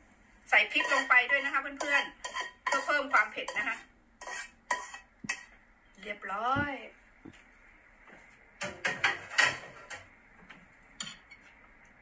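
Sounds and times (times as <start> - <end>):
metal utensils clinking on ceramic bowl: 0.8 - 5.5.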